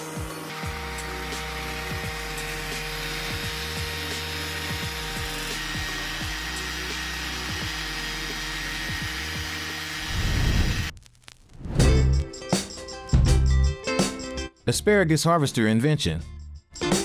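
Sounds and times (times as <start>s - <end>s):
music: 0.0s - 10.9s, 11.6s - 17.0s
small engine running: 0.0s - 10.9s.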